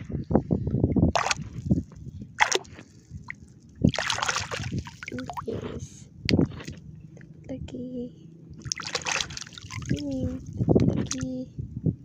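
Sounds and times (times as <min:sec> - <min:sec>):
hand splashing in shallow water: 0:01.1 - 0:01.6, 0:02.4 - 0:02.8, 0:03.9 - 0:05.4, 0:08.6 - 0:10.2.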